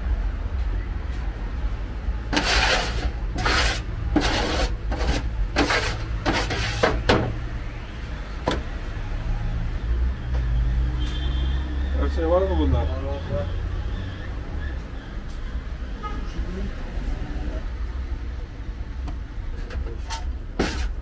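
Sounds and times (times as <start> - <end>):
metal spatula scraping grill tray: 2.3 - 7.1, 19.9 - 21.0.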